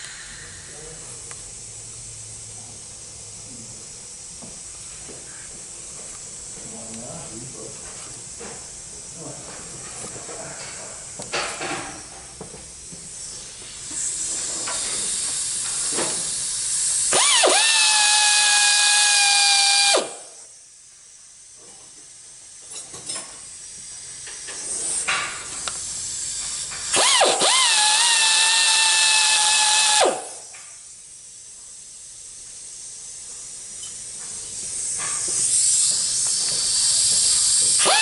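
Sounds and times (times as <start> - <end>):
high-speed grinder whining: 14.1 - 20.4, 25.6 - 30.5, 35.2 - 38.0.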